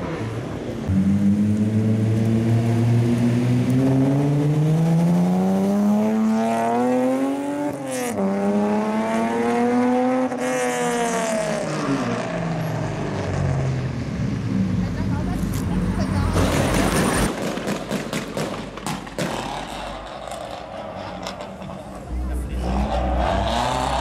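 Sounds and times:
car engine revving: 0.0s - 17.3s, 18.9s - 24.0s
sharp crack: 16.4s - 20.5s.

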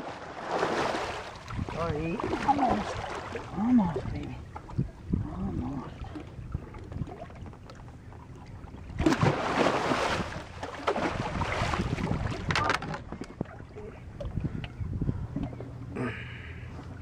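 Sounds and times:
fish splashing in water: 9.0s - 12.5s.

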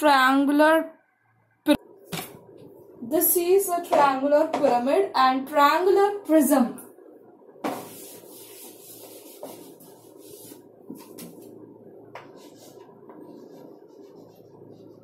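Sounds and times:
chalkboard being wiped: 7.7s - 11.5s, 12.2s - 15.0s.

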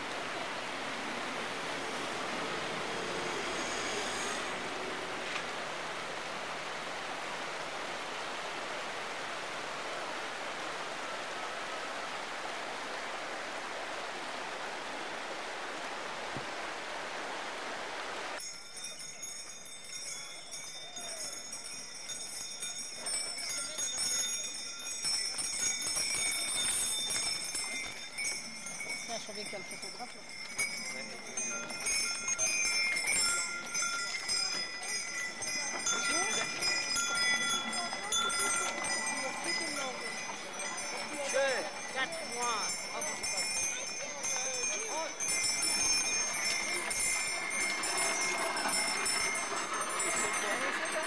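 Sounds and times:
harness bells jingling: 0.0s - 6.6s, 18.4s - 51.0s
steady rushing noise: 0.0s - 11.5s.

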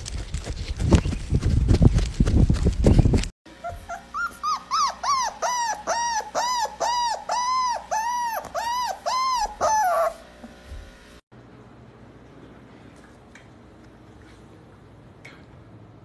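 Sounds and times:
dog whimpering: 3.5s - 10.3s.

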